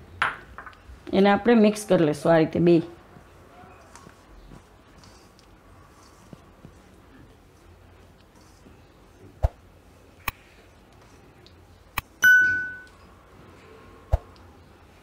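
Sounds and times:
notification bell ding: 12.2 - 13.0.

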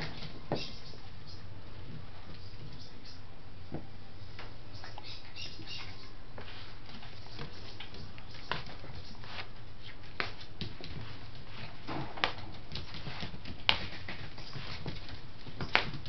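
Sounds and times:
claws clicking on vinyl floor: 6.9 - 16.0.

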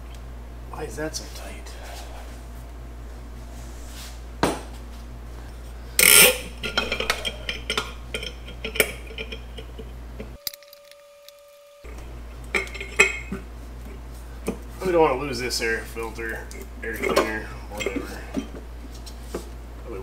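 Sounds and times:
metal tools clinking: 6.0 - 11.4, 12.5 - 13.4.

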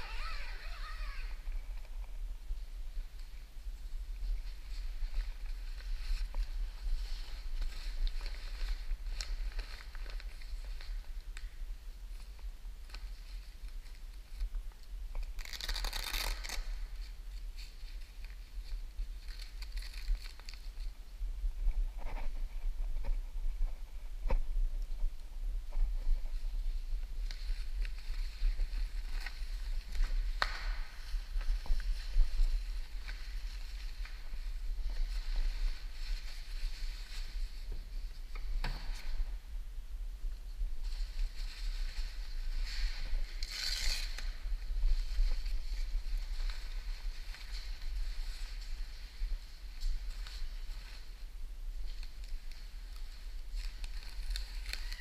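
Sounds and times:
plastic cover and tape tearing: 0.0 - 1.4, 15.3 - 16.9, 43.3 - 44.4.

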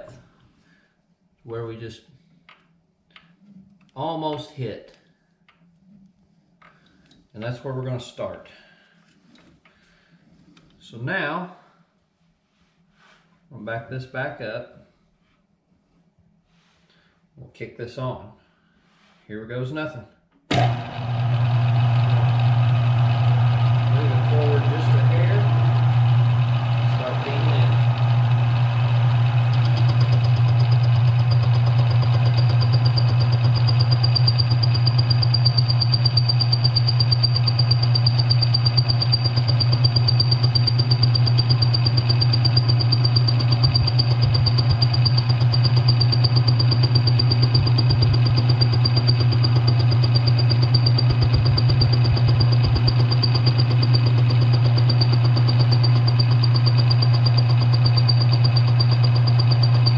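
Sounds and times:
lathe running hum: 20.5 - 59.9
thin high whine: 21.4 - 59.9.

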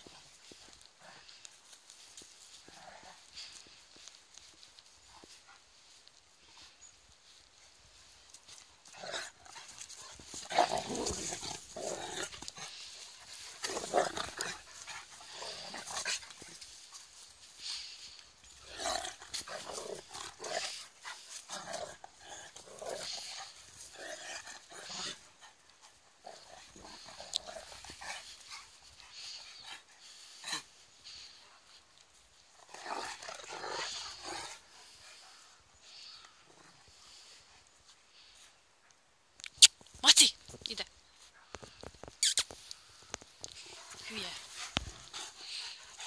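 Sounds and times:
dogs growling: 8.5 - 37.5, 43.4 - 46.0.

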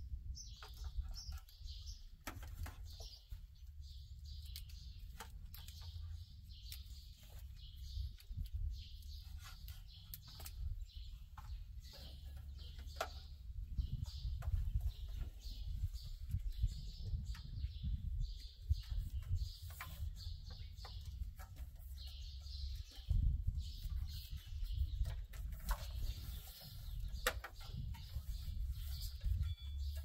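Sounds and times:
birds chirping: 0.0 - 30.0
wind buffeting microphone: 7.6 - 9.2, 12.4 - 21.5, 22.1 - 30.0.

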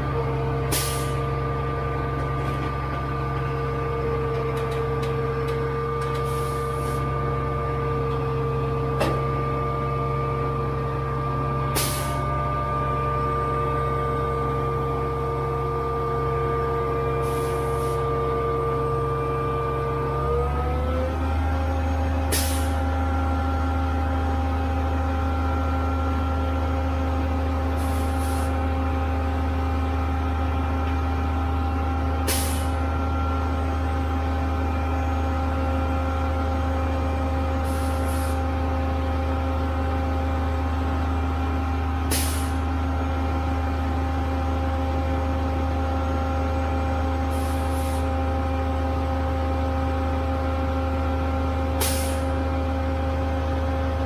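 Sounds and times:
diesel engine running steadily: 0.0 - 54.0
short sharp air hisses: 0.7 - 1.2, 11.8 - 12.2, 22.3 - 22.8, 32.3 - 32.7, 42.1 - 42.6, 47.3 - 48.0, 51.8 - 52.3.

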